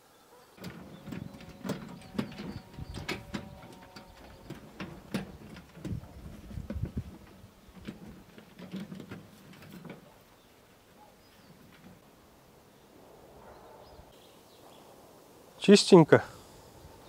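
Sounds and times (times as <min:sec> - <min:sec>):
wooden boards knocking in wheelbarrow: 0:00.6 - 0:10.2.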